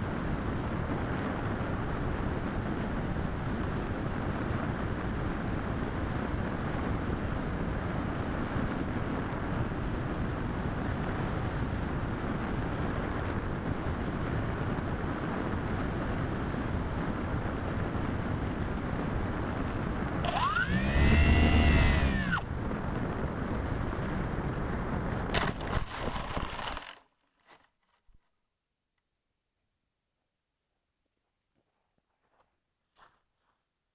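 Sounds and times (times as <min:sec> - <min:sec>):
wind rushing over microphone: 0:00.0 - 0:26.5
electric motor whirring: 0:20.3 - 0:22.5.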